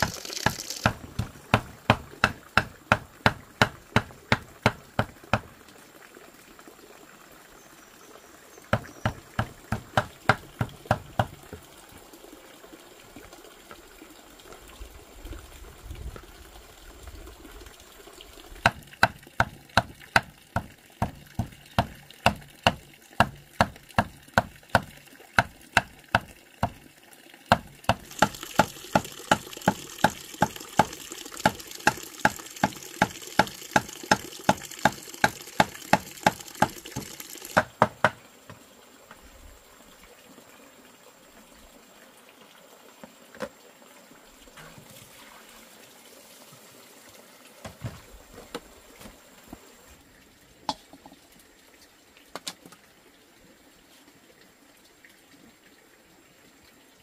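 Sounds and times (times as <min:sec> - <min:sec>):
cleaver chopping on wooden board: 0:00.0 - 0:05.5, 0:08.7 - 0:11.4, 0:18.6 - 0:26.8, 0:27.5 - 0:30.2, 0:33.0 - 0:38.2
water pouring into basin: 0:00.0 - 0:37.6, 0:39.6 - 0:48.0.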